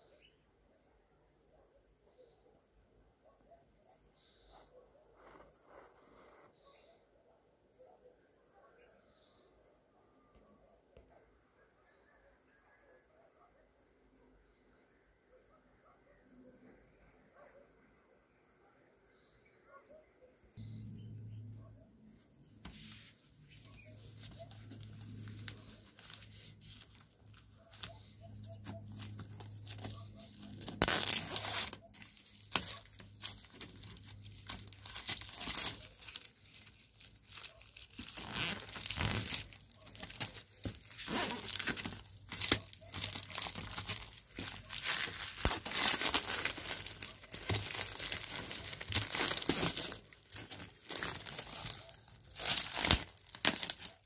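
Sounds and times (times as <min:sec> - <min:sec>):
plastic wrapping crinkling: 0:22.8 - 0:54.0.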